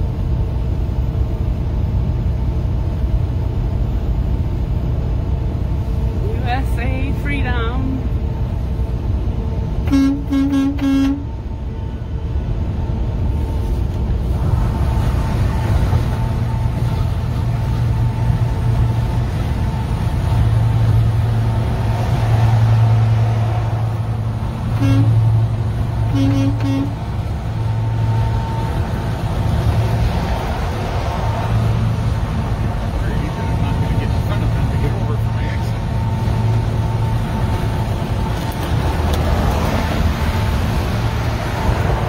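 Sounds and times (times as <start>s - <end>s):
vehicle cabin road rumble: 0.0s - 42.0s
vehicle horn honks: 9.8s - 11.3s, 24.8s - 25.3s, 26.1s - 27.0s.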